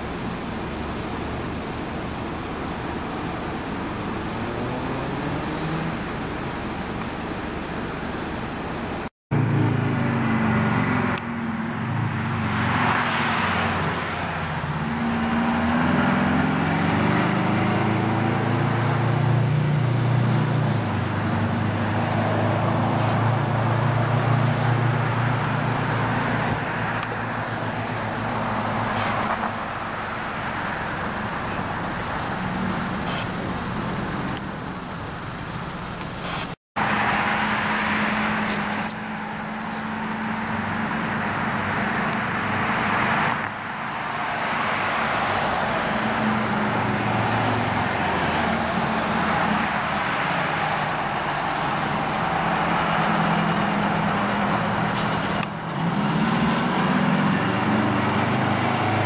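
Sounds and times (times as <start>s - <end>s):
road traffic: 0.0s - 59.0s
loud engine revving: 2.1s - 7.1s, 11.9s - 34.4s, 36.2s - 59.0s
car passing by: 4.3s - 6.2s, 11.8s - 29.9s, 36.2s - 59.0s.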